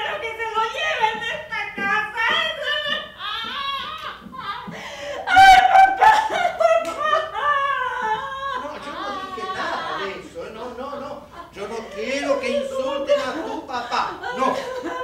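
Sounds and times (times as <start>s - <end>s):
woman wailing: 2.2s - 10.2s.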